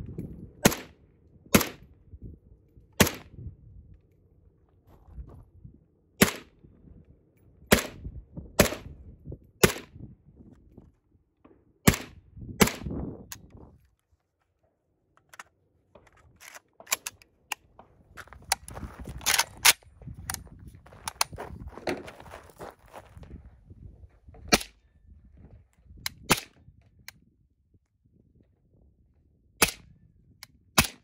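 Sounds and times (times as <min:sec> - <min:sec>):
suppressed rifle shots: 0:00.6 - 0:00.9.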